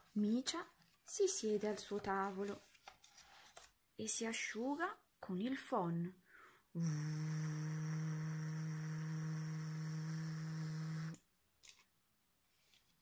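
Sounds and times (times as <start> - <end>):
woman imitating a hair dryer: 6.8 - 11.2.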